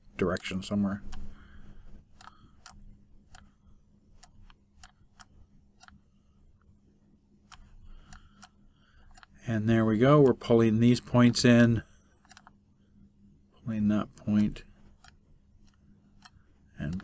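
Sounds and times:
faint low hum: 0.0s - 17.0s
computer mouse clicking: 0.3s - 6.0s, 7.4s - 9.4s, 12.2s - 12.6s, 14.0s - 17.0s.

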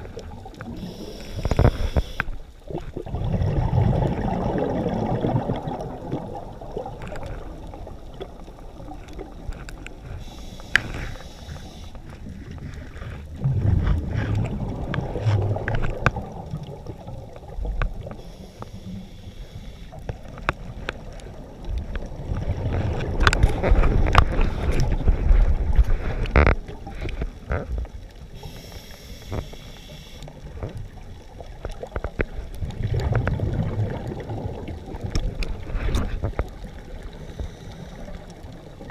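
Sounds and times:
regulator inhalation hiss: 0.8s - 2.4s, 10.2s - 12.0s, 18.2s - 19.9s, 28.4s - 30.3s
gurgling exhaled bubbles: 2.6s - 10.2s, 12.1s - 19.1s, 20.2s - 28.6s, 30.3s - 38.9s.

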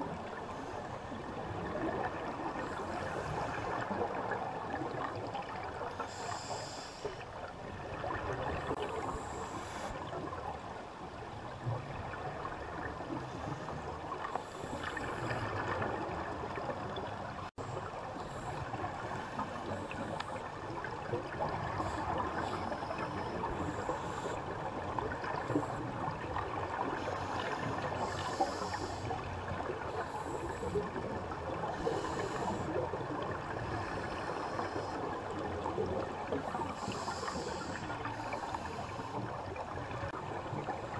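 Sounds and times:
scuba regulator bubbling: 26.8s - 39.4s.

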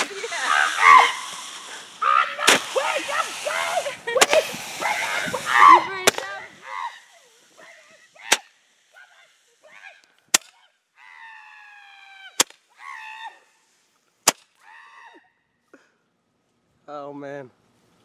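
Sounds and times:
roman candle pops: 2.4s - 2.8s.

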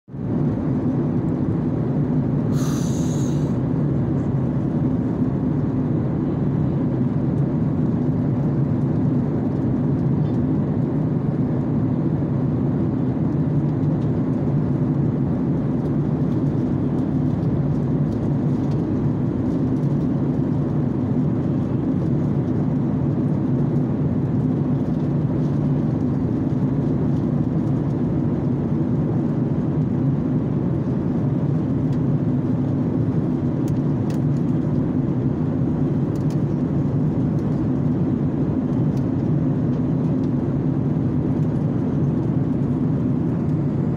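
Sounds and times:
jet cabin drone: 0.1s - 43.9s
brief high hiss: 2.5s - 3.6s.

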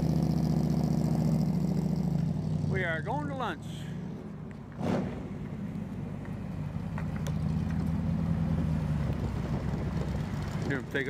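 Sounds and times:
car engine rumbling: 0.0s - 11.0s.

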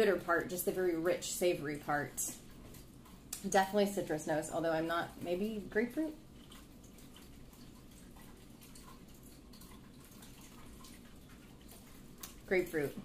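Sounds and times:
soft sipping and mouth sounds: 6.2s - 12.5s.

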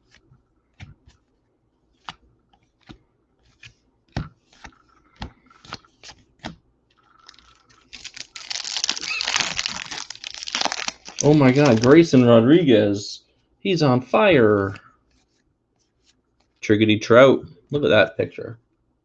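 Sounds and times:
trading cards snapping: 2.0s - 6.6s, 7.9s - 12.0s
foil wrapper crinkling and tearing: 7.2s - 12.2s.

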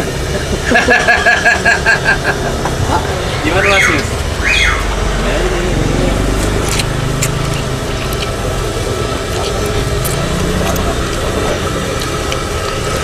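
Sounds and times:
vehicle engine idling: 0.0s - 13.0s
slurping noodles: 6.0s - 13.0s.

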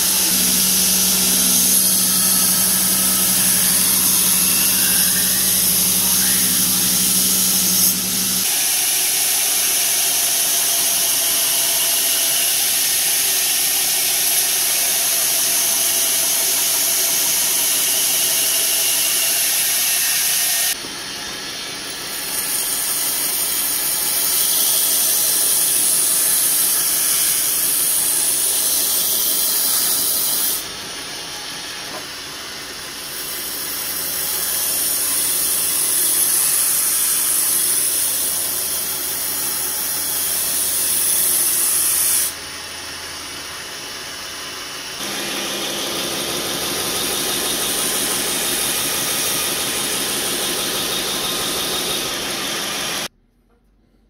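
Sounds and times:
belt grinder grinding steel blade: 0.0s - 9.8s, 21.9s - 31.5s, 33.0s - 42.4s.

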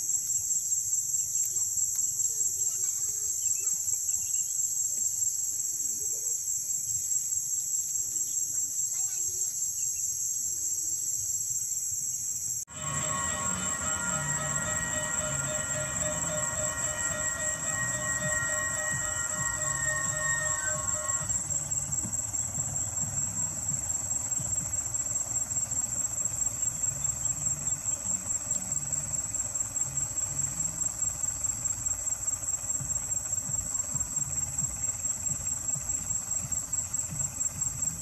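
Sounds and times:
insects chirring: 0.0s - 38.0s
held tone with several pitches: 12.7s - 23.6s.

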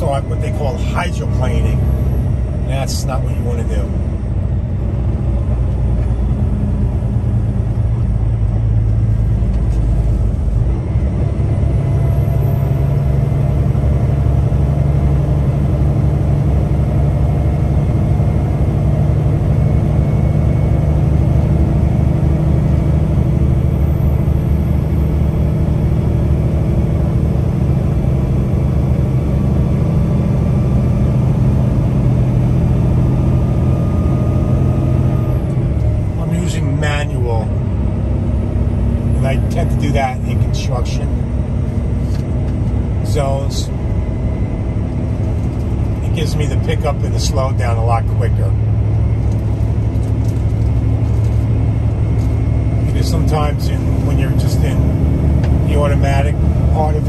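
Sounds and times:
truck engine and road rumble: 0.0s - 57.0s
faint whine: 33.1s - 57.0s.

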